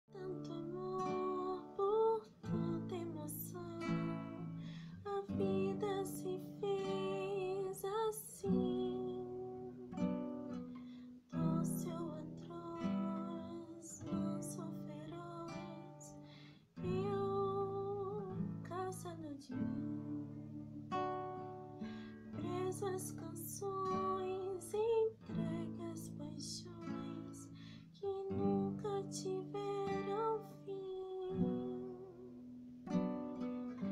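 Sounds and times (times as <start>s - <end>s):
woman singing a ballad: 0.0s - 10.7s, 11.3s - 21.4s, 22.3s - 32.5s
strummed acoustic guitar: 0.1s - 33.9s.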